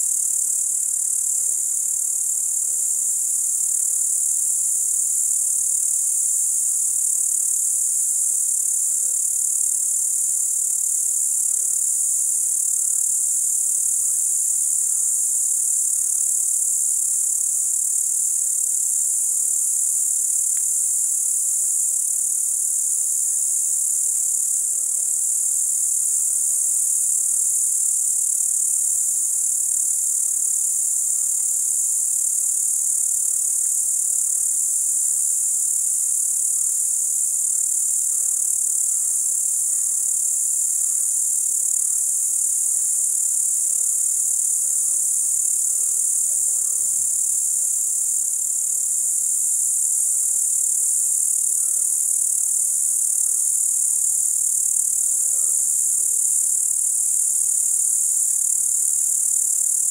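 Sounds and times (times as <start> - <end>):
crickets trilling: 0.0 - 59.9.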